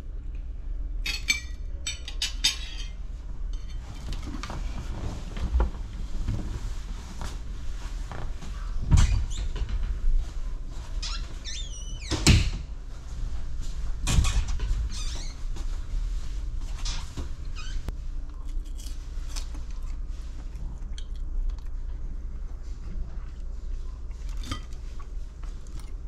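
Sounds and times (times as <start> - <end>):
door squeak: 8.9 - 9.7, 11.0 - 12.6, 14.1 - 15.4.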